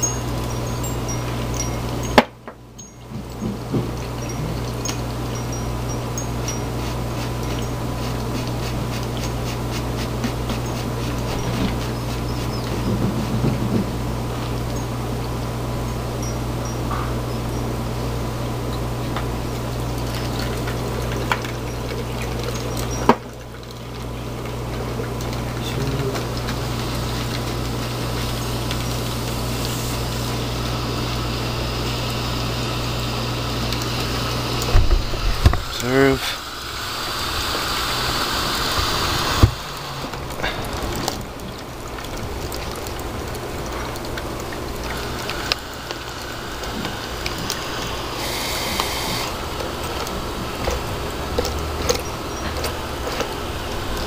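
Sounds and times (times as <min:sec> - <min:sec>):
dry ice fizzing in water: 0:00.0 - 0:54.0
brief gas hiss: 0:48.1 - 0:49.3.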